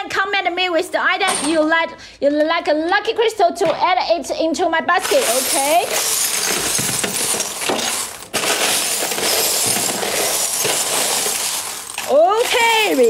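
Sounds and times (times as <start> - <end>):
stones and glass clattering: 5.0 - 13.0.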